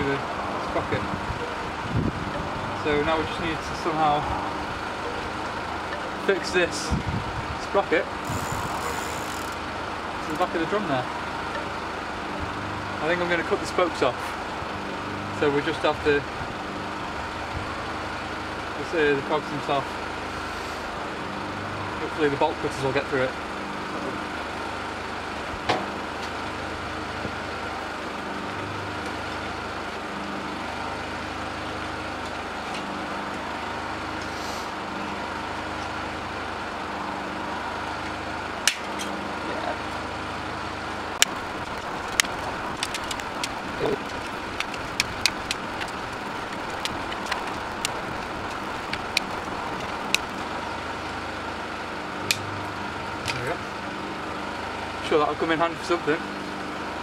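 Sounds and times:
steady background noise: 0.0 - 57.0
bolt cutters snapping spokes: 38.6 - 39.1, 41.2 - 50.4.

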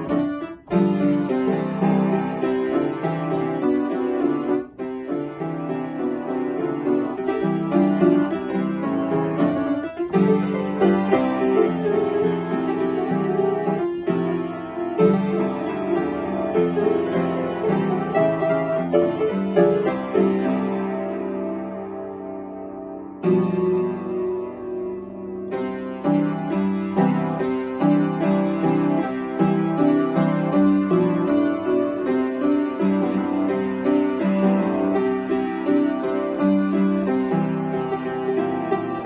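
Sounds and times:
upright piano playing quick notes: 0.0 - 39.0.

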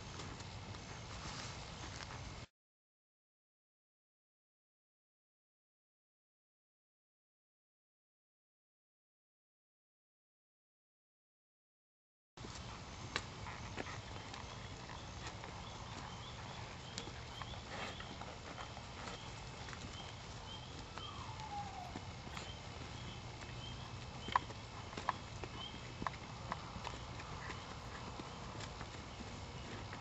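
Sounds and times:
horse hoofbeats on dirt: 0.0 - 2.5, 12.4 - 30.0.

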